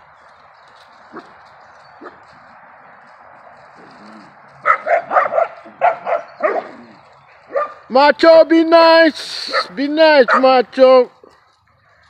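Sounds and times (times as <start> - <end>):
dogs yelping: 1.1 - 2.3, 3.7 - 7.9, 9.4 - 10.6
dogs barking and growling: 3.7 - 7.9, 9.5 - 10.5.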